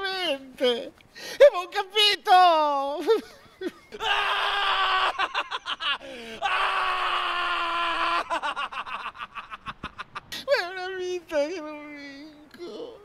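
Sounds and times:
man screaming: 4.0s - 5.5s, 6.4s - 8.7s
man gasping: 6.0s - 6.4s.

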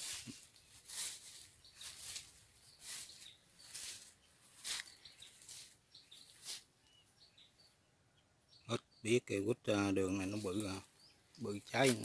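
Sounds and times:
footsteps swishing through grass: 0.0s - 6.7s, 11.6s - 12.0s
small birds chirping: 0.0s - 12.0s.

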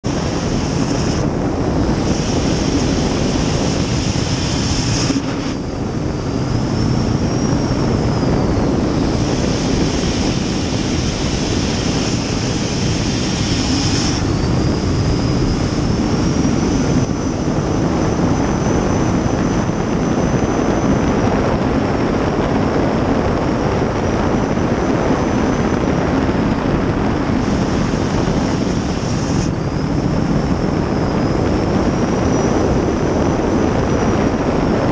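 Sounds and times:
jet boat engine roaring: 0.0s - 34.9s.

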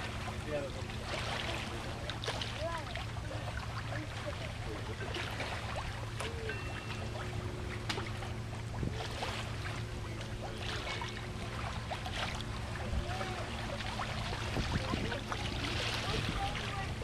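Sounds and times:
steady low hum: 0.0s - 17.0s
water splashing along a hull: 0.0s - 17.0s.

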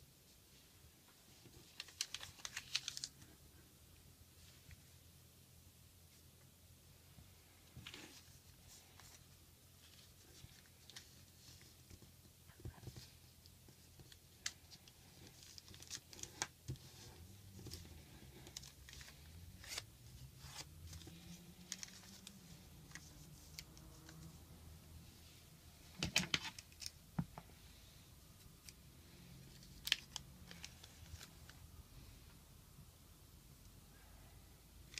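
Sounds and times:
paper rustling and crackling: 1.3s - 3.4s, 9.8s - 24.3s, 29.5s - 31.6s.

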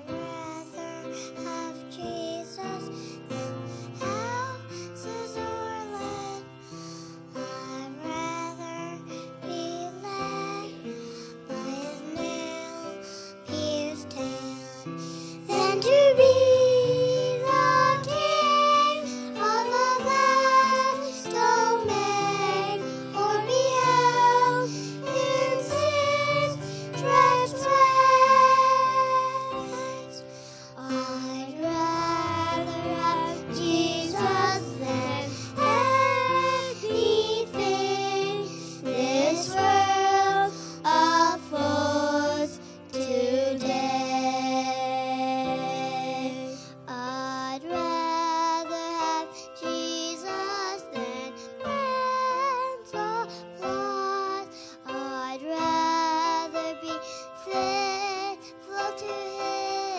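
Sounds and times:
grand piano: 0.0s - 59.9s
girls singing together: 15.5s - 30.0s, 30.9s - 46.6s, 49.7s - 59.9s.

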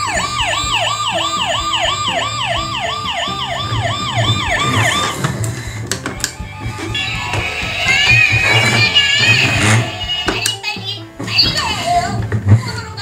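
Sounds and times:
toy electronic siren wailing: 0.0s - 5.4s, 6.1s - 10.6s.

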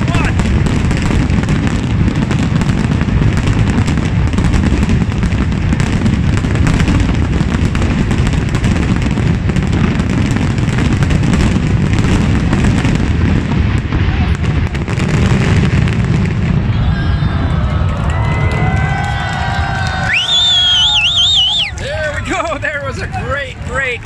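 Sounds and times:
fireworks booming and crackling: 0.0s - 24.0s.

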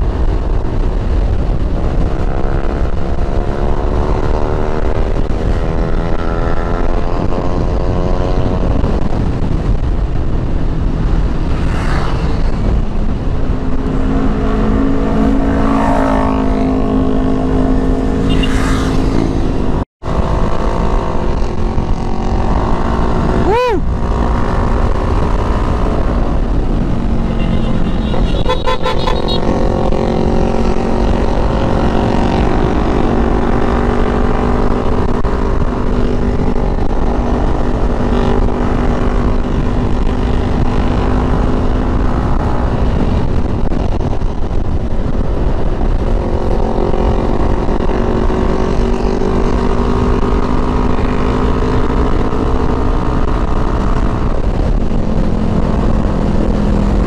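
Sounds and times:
motorcycle engine cruising: 0.0s - 57.0s
wind buffeting microphone: 0.0s - 57.0s
vehicle horn tooting: 27.2s - 29.5s.

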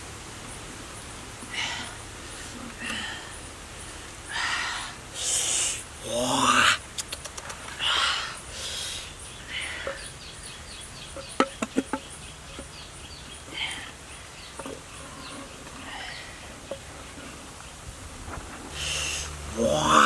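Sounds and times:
insects chirping: 0.0s - 20.0s
short insect calls: 0.5s - 17.9s, 18.7s - 20.0s
sharp clicks: 6.9s - 7.7s.

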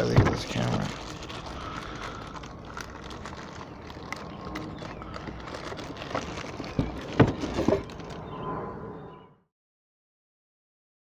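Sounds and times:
plastic bag crinkling: 0.0s - 8.3s
cardboard box handled: 2.8s - 8.2s.

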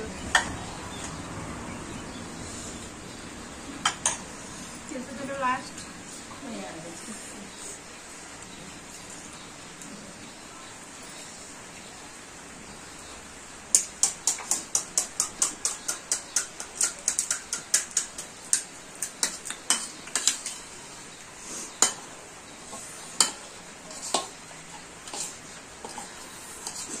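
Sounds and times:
utensil clinking against a dish: 13.7s - 20.8s, 21.7s - 22.1s, 22.7s - 27.0s.

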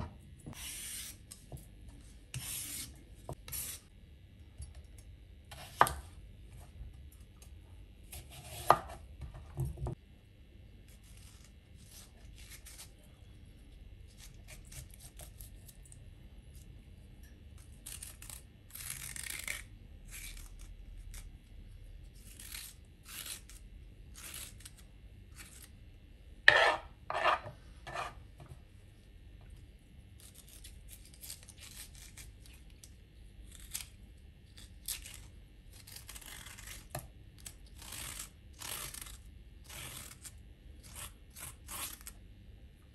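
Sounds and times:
spoon scraping cucumber seeds: 26.5s - 28.2s.

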